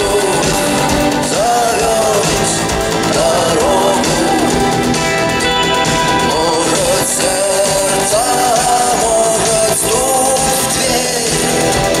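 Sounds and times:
rock band playing live: 0.0 - 12.0.

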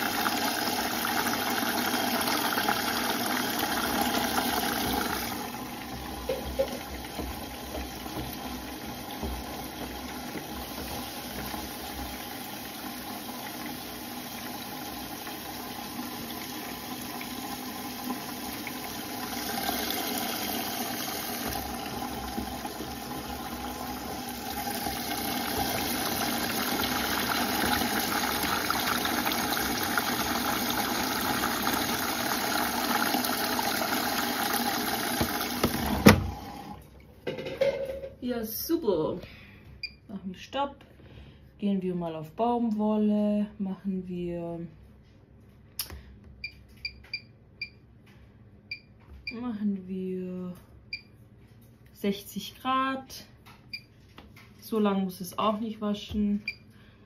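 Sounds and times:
washing machine running: 0.0 - 38.1.

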